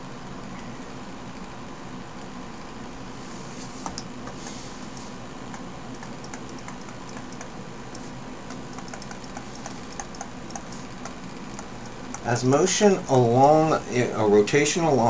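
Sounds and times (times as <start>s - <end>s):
steady low hum: 0.0s - 15.0s
stylus clicking on tablet: 5.5s - 12.3s.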